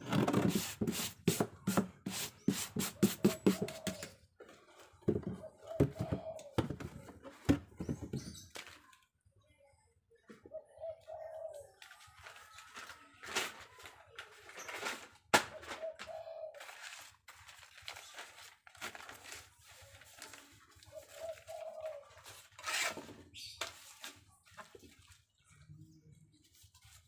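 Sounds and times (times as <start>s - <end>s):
stiff paper tearing and rustling: 11.9s - 15.8s, 16.5s - 24.3s.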